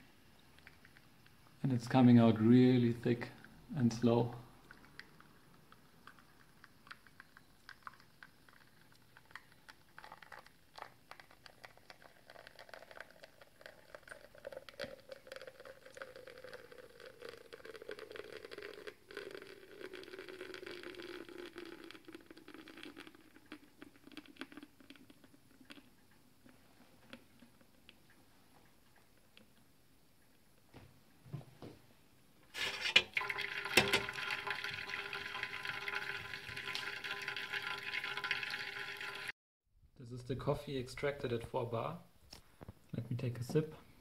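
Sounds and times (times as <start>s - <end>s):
small crackles and drips: 0.0s - 31.8s, 33.1s - 39.3s
espresso pouring: 2.3s - 28.1s, 32.6s - 39.3s.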